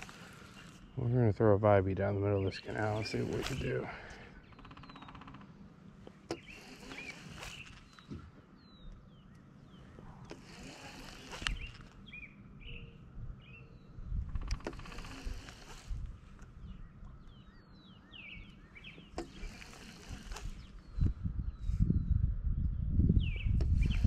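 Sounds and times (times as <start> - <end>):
small birds chirping: 0.0 - 24.0
wind rumble on microphone: 11.4 - 18.5, 19.3 - 24.0.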